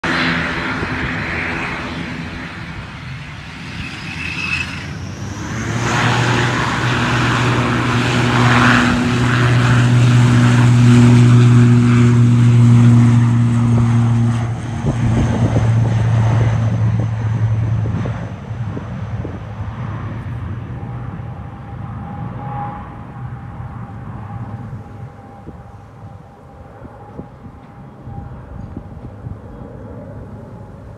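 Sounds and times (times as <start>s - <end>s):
turboprop engines drone and whine: 0.0s - 30.9s.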